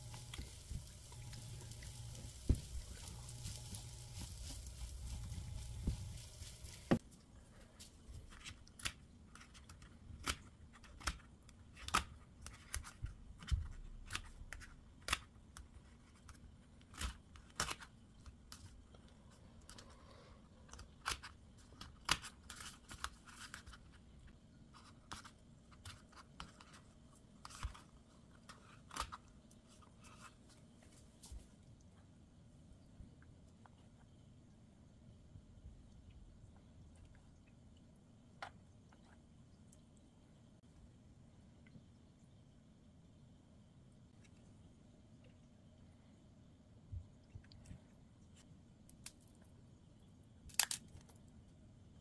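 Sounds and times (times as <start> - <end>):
plastic spatula stirring: 0.0 - 7.0
rice sizzling in a pan: 0.0 - 7.0.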